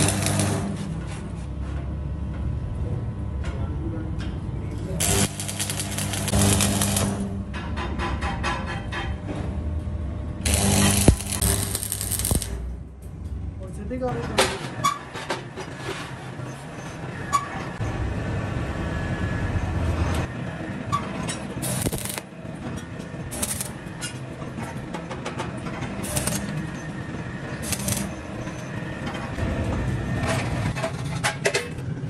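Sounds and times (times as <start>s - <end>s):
welding arc crackling: 0.0s - 0.7s, 5.0s - 7.3s, 10.4s - 12.7s, 21.6s - 22.3s, 23.3s - 23.9s, 26.0s - 26.6s, 27.6s - 28.4s.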